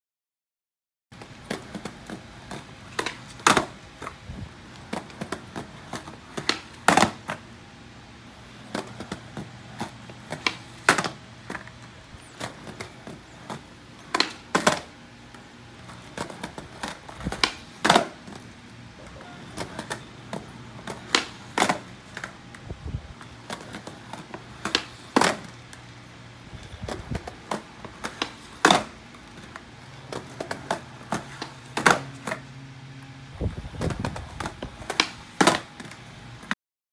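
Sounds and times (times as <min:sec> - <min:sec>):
skateboard wheels rolling on pavers: 0:01.1 - 0:36.6
skateboard landing clack: 0:01.4 - 0:04.1, 0:04.8 - 0:07.4, 0:08.7 - 0:11.7, 0:12.4 - 0:14.9, 0:15.9 - 0:18.4, 0:19.5 - 0:22.4, 0:23.5 - 0:25.6, 0:26.8 - 0:32.4, 0:33.8 - 0:36.0.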